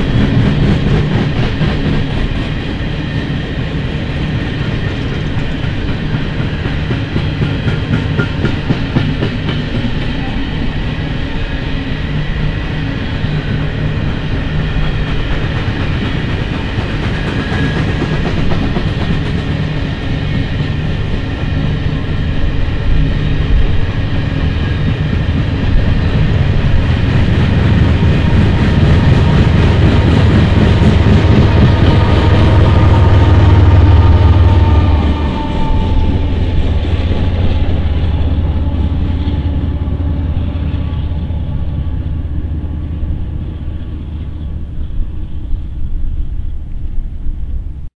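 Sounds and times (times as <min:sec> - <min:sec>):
train cars rumbling and clattering: 0:00.0 - 0:47.9.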